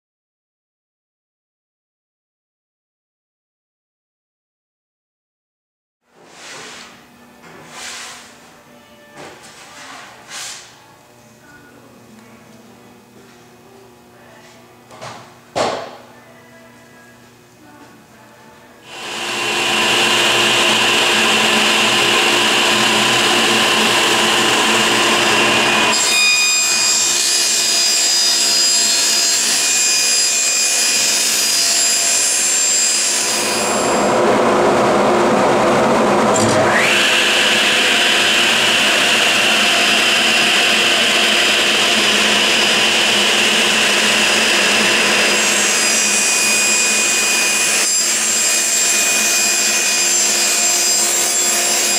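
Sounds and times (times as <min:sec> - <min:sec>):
table saw cutting plywood: 0:18.8 - 0:51.9.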